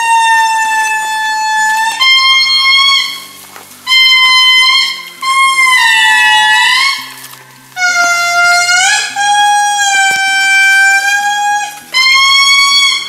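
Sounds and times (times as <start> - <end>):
lemurs wailing: 0.0 - 13.0.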